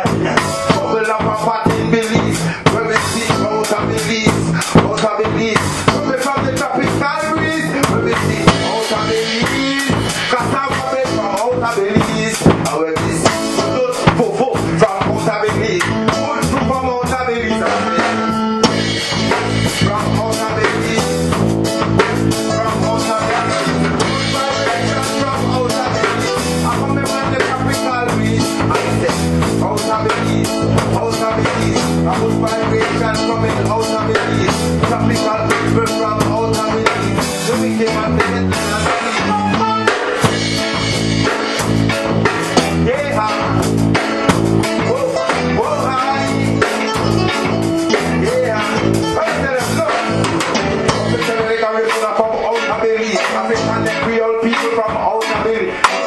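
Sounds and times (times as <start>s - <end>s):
bass guitar: 0.0s - 56.0s
drum kit: 0.0s - 56.0s
electric guitar: 0.0s - 56.0s.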